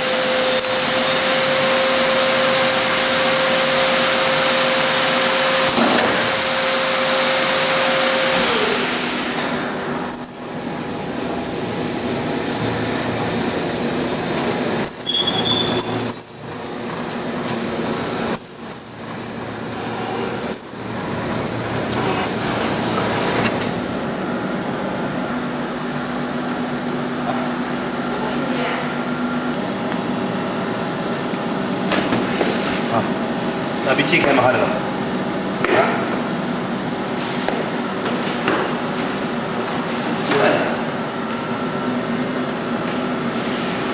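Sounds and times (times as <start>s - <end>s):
brief high squeaks: 10.0s - 10.8s, 14.8s - 16.8s
welding machine humming: 19.3s - 25.0s.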